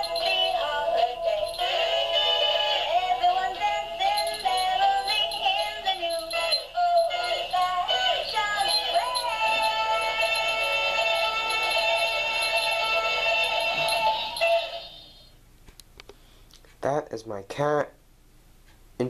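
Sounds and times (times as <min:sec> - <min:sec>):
synthesized singing voice: 0:00.0 - 0:12.4
jingly toy tune: 0:00.0 - 0:15.3.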